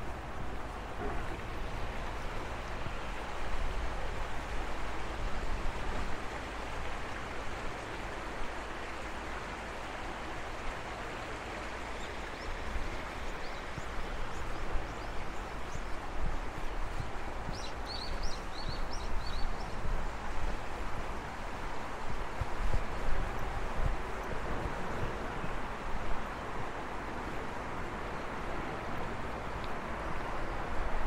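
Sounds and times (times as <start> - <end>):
steady rushing noise: 0.0 - 31.0
wind buffeting microphone: 12.3 - 31.0.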